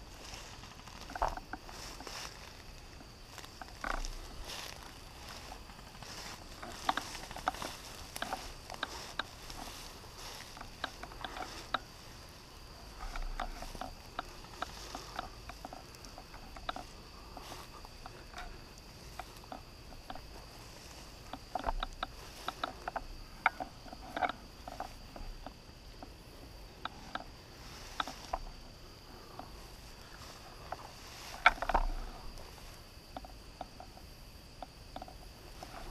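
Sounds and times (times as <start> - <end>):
grass rustling and snapping: 0.0 - 35.9
high-pitched insect trill: 0.0 - 35.9.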